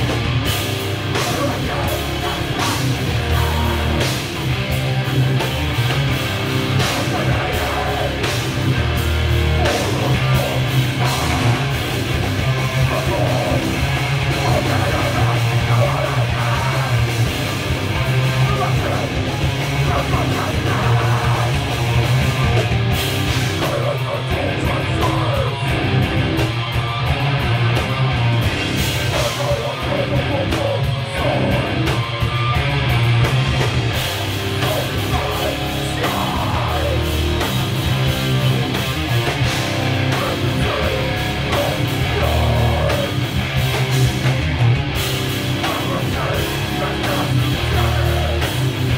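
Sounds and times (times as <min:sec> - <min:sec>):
bass guitar: 0:00.0 - 0:48.9
drum kit: 0:00.0 - 0:48.9
electric guitars: 0:00.0 - 0:48.9
vocals through a pa: 0:01.1 - 0:04.2, 0:06.7 - 0:08.5, 0:09.6 - 0:11.7, 0:12.4 - 0:22.0, 0:23.6 - 0:25.7, 0:29.1 - 0:31.9, 0:34.6 - 0:37.5, 0:40.0 - 0:43.3, 0:45.5 - 0:48.8.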